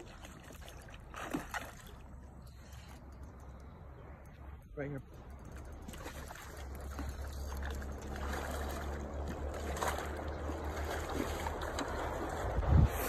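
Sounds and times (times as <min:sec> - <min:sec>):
fish splashing at water surface: 0:00.0 - 0:02.7, 0:05.8 - 0:12.6
steady low rumble: 0:01.8 - 0:13.0.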